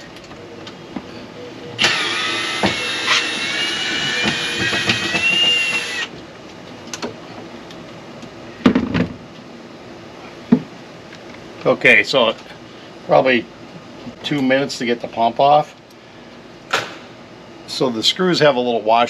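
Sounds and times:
cordless drill running: 0:01.8 - 0:06.1.

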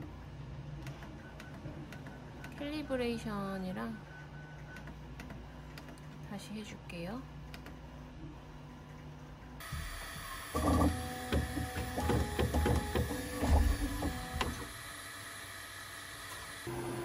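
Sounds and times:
printer steady hum: 0:07.8 - 0:17.0
stepper motors whirring: 0:09.6 - 0:17.0.

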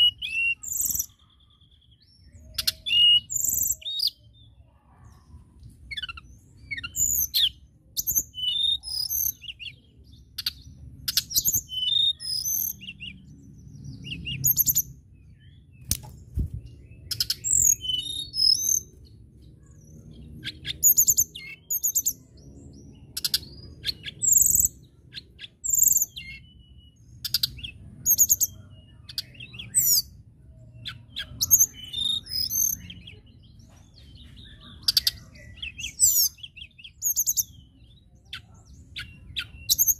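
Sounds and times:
bird singing warbled phrases: 0:00.0 - 0:39.9.

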